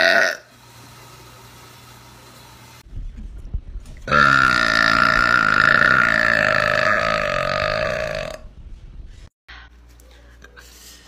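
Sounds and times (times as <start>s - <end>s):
woman burping: 0.0s - 0.5s, 4.1s - 8.4s.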